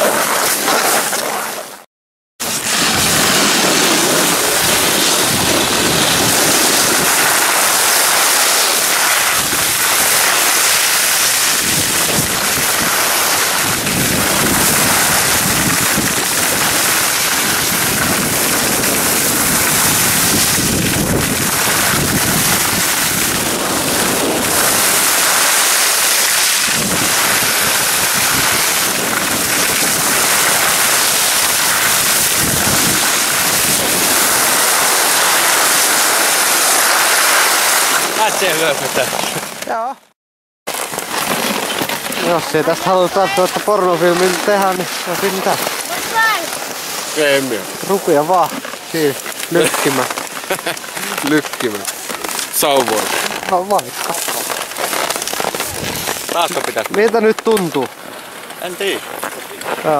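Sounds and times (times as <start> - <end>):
snow hissing and scraping under skis: 0.0 - 1.8, 2.4 - 39.6, 40.7 - 59.9
wind on microphone: 2.6 - 39.0, 55.4 - 56.7.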